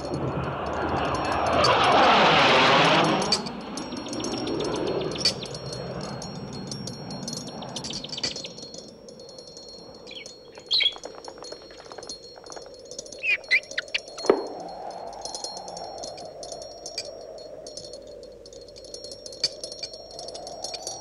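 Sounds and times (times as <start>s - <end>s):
high tinkling chimes: 0.0s - 21.0s
bird chirping: 3.9s - 5.8s, 7.4s - 8.8s, 10.0s - 14.6s.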